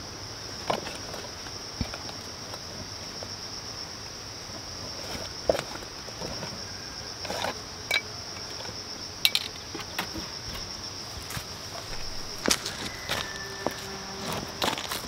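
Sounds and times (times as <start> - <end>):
insects chirping chorus: 0.0 - 15.0
gear clicking in a backpack: 11.8 - 15.0.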